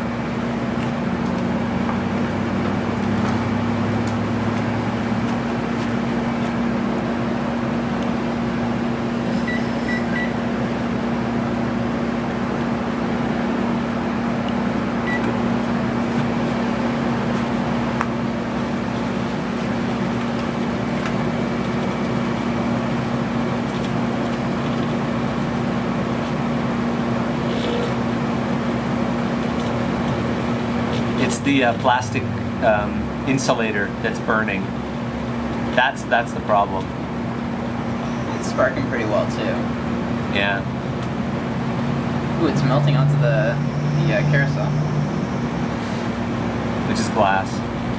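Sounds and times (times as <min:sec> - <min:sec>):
microwave oven humming: 0:00.0 - 0:47.9
microwave keypad beeps: 0:09.5 - 0:10.4, 0:15.0 - 0:15.3.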